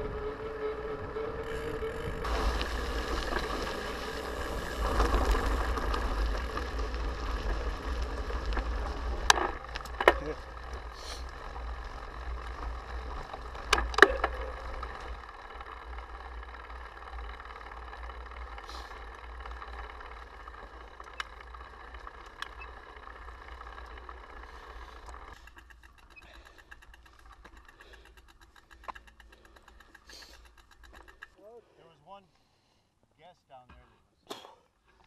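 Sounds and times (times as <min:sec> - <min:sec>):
bicycle freewheel ticking: 0:00.0 - 0:31.5
bicycle drivetrain noise: 0:00.0 - 0:32.8
tyres crunching on dirt: 0:02.2 - 0:25.3.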